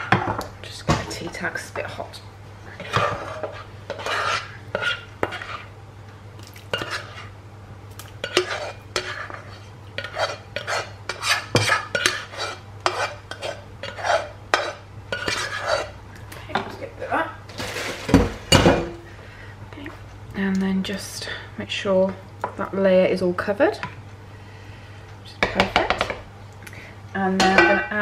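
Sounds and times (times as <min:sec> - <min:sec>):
steady low hum: 0:00.0 - 0:28.0
spoon scraping a pan: 0:02.7 - 0:05.7, 0:06.7 - 0:07.4, 0:08.2 - 0:16.0, 0:27.4 - 0:28.0.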